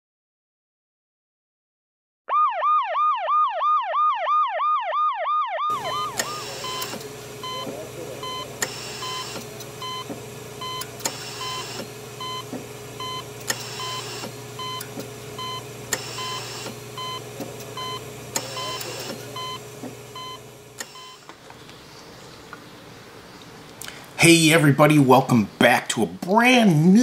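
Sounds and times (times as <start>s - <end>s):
electronic beeping: 5.7s - 21.2s
steady hum: 5.7s - 24.8s
click and short hiss: 6.2s - 7.8s, 8.6s - 10.2s, 10.8s - 12.7s, 13.4s - 15.1s, 15.9s - 16.8s, 17.4s - 20.0s, 20.8s - 21.4s.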